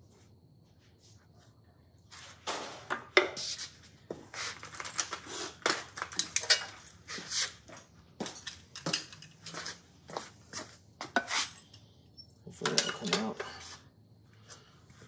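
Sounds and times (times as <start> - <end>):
hand tools clinking on metal: 4.7 - 9.8, 12.5 - 13.7.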